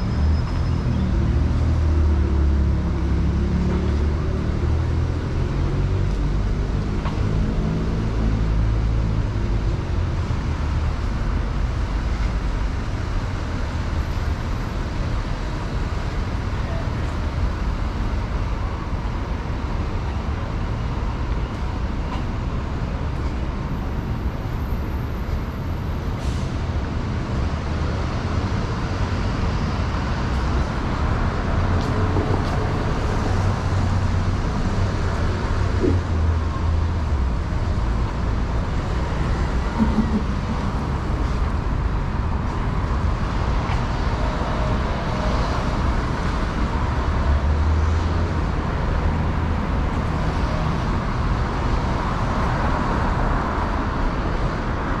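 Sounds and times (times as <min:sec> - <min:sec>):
rumble of passing traffic: 0:00.0 - 0:55.0.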